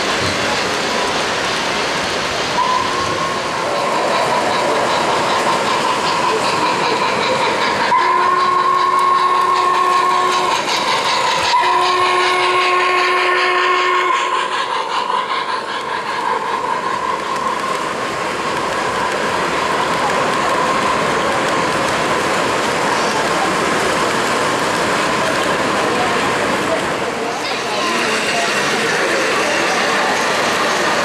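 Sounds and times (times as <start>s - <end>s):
model trains rumbling on track: 0.0s - 31.0s
model train whistle blasts: 2.6s - 3.2s, 7.9s - 10.6s, 11.4s - 14.4s.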